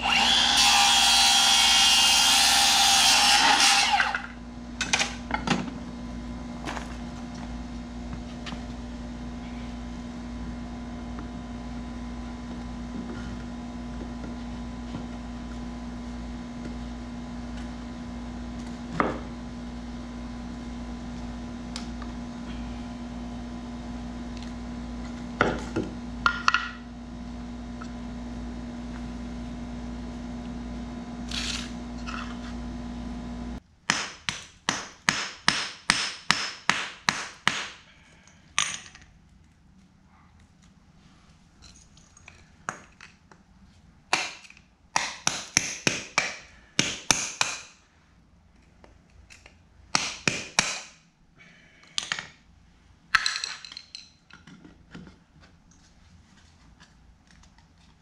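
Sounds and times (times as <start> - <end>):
circular saw cutting board: 0.0 - 4.4, 31.2 - 33.6
steady low hum: 4.2 - 33.8.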